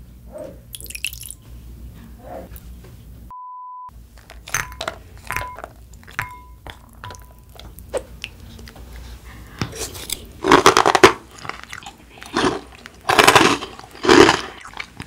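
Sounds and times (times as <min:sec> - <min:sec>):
milk pouring into a glass bowl: 0:00.8 - 0:01.4
censor beep: 0:03.3 - 0:03.9
spoon clinking against glass bowl: 0:04.5 - 0:07.4.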